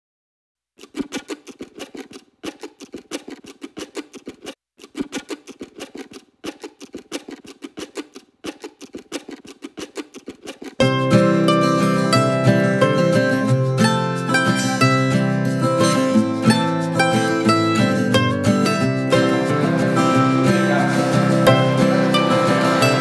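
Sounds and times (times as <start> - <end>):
fast even ticking: 0.8 - 11.1.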